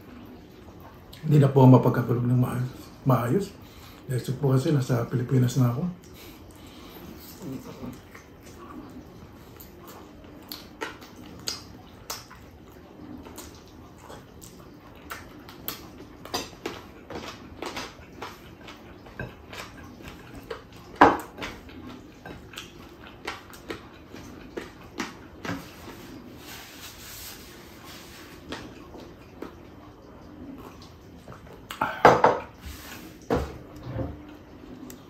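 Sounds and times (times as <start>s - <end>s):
person chewing food: 6.0s - 35.0s
lip smacks: 9.6s - 12.5s, 31.6s - 31.9s.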